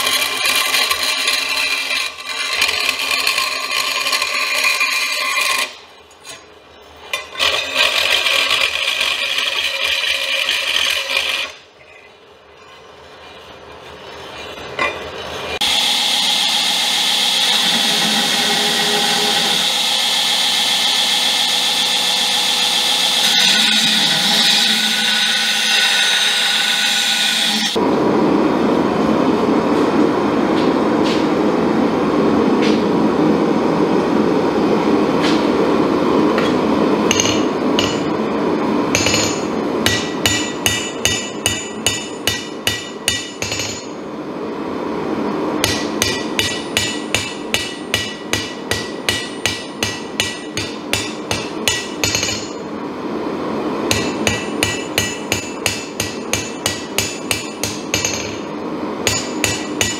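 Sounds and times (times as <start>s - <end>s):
machine noise: 0.0s - 59.9s
hammer ringing on anvil: 37.1s - 38.1s, 38.9s - 44.0s, 45.6s - 52.6s, 53.9s - 58.4s, 59.0s - 59.9s.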